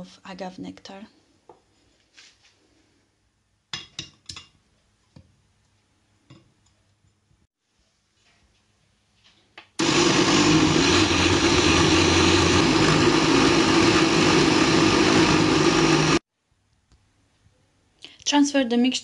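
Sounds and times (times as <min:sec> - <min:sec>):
blender running: 0:09.8 - 0:16.2.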